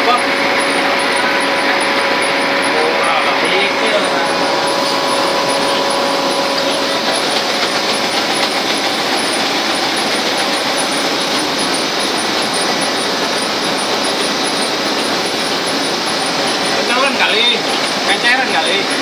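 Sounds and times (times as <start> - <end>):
printing machine running: 0.0 - 19.0.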